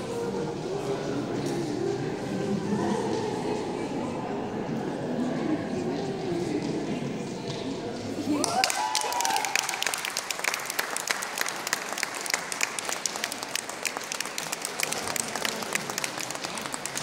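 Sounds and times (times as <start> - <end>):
audience applauding: 8.3 - 17.0.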